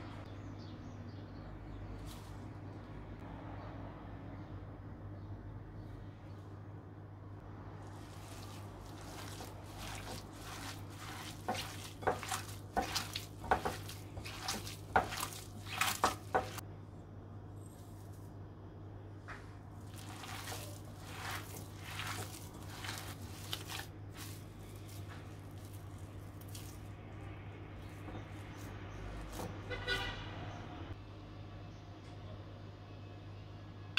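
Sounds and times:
hands squelching ground meat: 0:07.8 - 0:16.6, 0:19.8 - 0:29.6.

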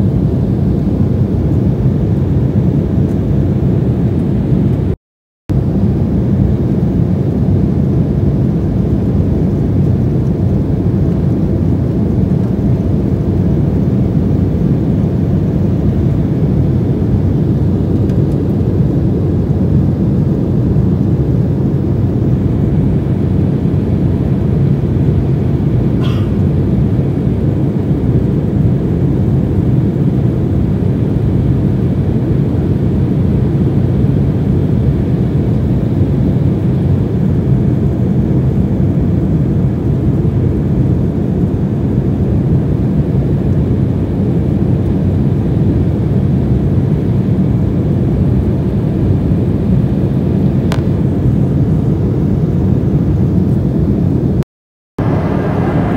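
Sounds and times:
jet engine drone in cabin: 0:00.0 - 0:54.4, 0:55.0 - 0:55.9.

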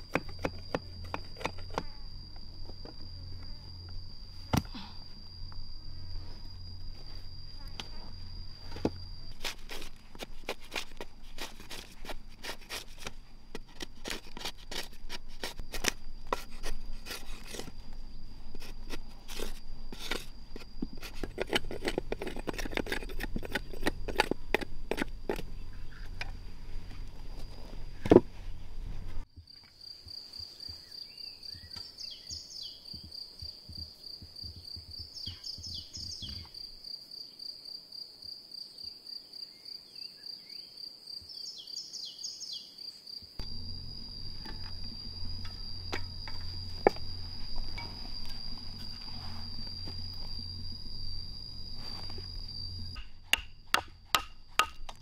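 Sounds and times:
high insect chirr: 0:00.0 - 0:55.0
tool scraping bark off log: 0:09.3 - 0:17.8, 0:18.6 - 0:25.5, 0:43.4 - 0:55.0.

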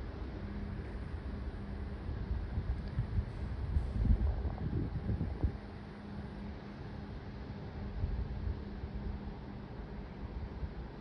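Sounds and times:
faint steady hum: 0:00.0 - 0:11.0
hiss: 0:03.0 - 0:08.0.

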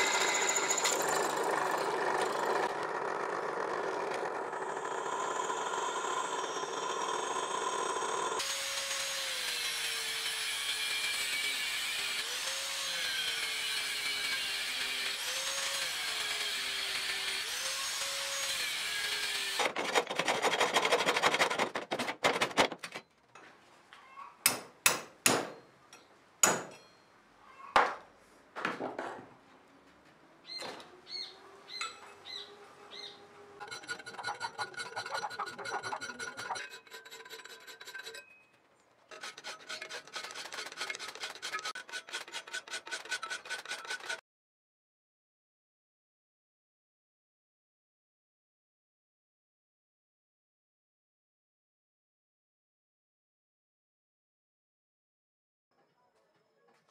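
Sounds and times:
angle grinder grinding steel: 0:00.0 - 0:21.4, 0:33.0 - 0:38.4, 0:39.1 - 0:44.2
hand file rasping on steel: 0:33.6 - 0:38.4, 0:39.1 - 0:44.2
metal strokes and clanks: 0:33.6 - 0:44.2.

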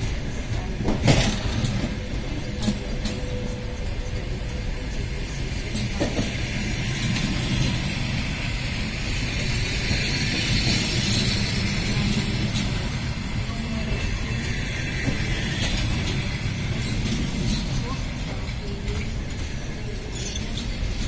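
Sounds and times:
train wheels rumbling on rails: 0:00.0 - 0:21.0.

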